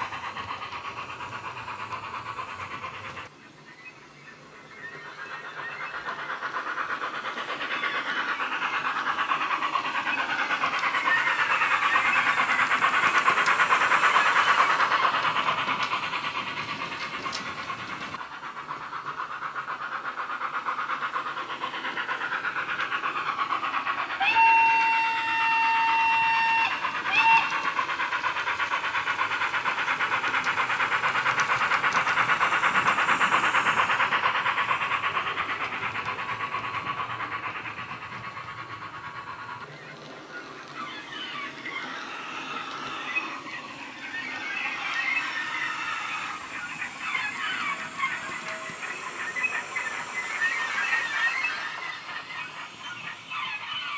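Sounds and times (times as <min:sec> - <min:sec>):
model train rushing: 0:00.0 - 0:53.9
model train whistle: 0:24.2 - 0:27.6.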